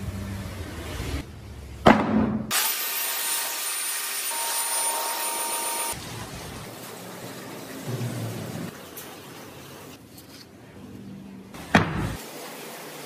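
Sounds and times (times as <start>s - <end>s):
power tool cutting wood: 2.5s - 6.0s.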